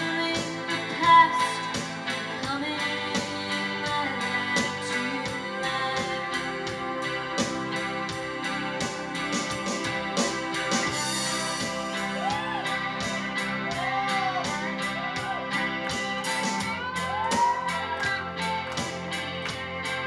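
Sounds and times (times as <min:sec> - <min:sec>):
sustained keyboard chords: 0:00.0 - 0:17.0
bass: 0:00.0 - 0:20.0
electric guitar solo: 0:00.0 - 0:20.0
drum beat: 0:09.2 - 0:19.7.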